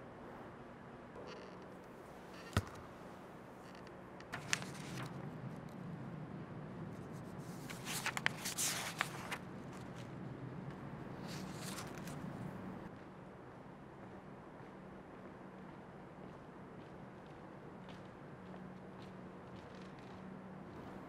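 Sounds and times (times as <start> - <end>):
paper rustling and crinkling: 4.4 - 5.2, 7.4 - 10.1, 11.2 - 12.3.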